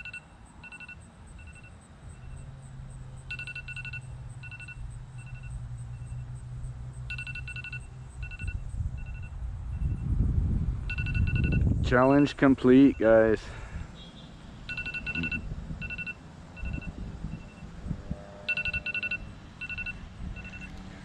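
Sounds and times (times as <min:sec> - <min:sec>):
timer alarm beeping: 0:00.0 - 0:02.4, 0:03.2 - 0:06.3, 0:07.1 - 0:10.0, 0:10.9 - 0:13.2, 0:14.7 - 0:17.7, 0:18.3 - 0:20.8.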